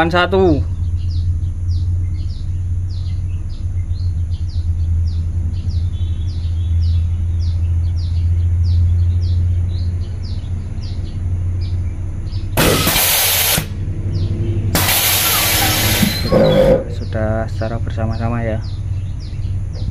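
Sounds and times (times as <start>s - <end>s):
small bird chirping: 0.0s - 19.9s
truck engine idling hum: 0.0s - 19.9s
compressed air hiss: 12.6s - 13.8s, 14.8s - 16.8s.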